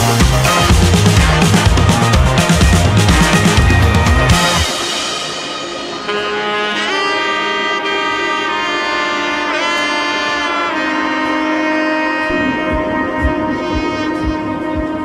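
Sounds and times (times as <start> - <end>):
slow melody of long held notes: 0.5 - 15.0.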